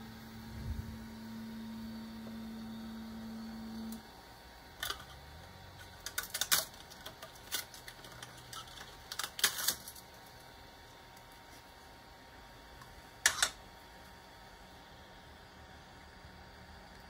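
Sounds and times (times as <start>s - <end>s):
printer humming: 0.0s - 17.0s.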